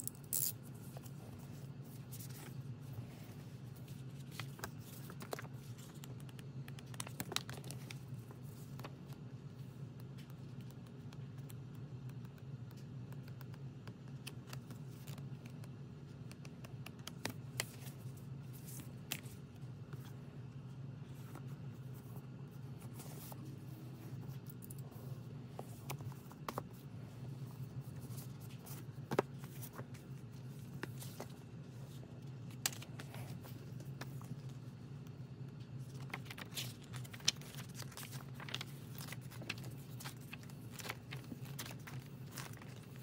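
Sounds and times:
steady low hum: 0:00.0 - 0:43.0
paper pages turning: 0:00.9 - 0:11.2, 0:16.7 - 0:20.2, 0:21.1 - 0:34.5, 0:35.7 - 0:43.0.

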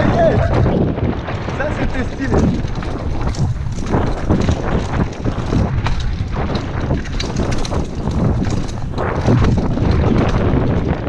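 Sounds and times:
bike chain and frame rattling: 0:00.0 - 0:11.0
tyres rumbling on dirt trail: 0:00.0 - 0:11.0
wind buffeting microphone: 0:00.0 - 0:11.0.

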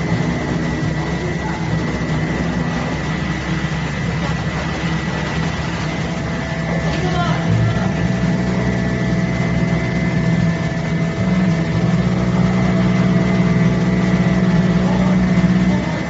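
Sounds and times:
constant higher tones: 0:00.0 - 0:16.0
cutting machine mechanical hum: 0:00.0 - 0:16.0.

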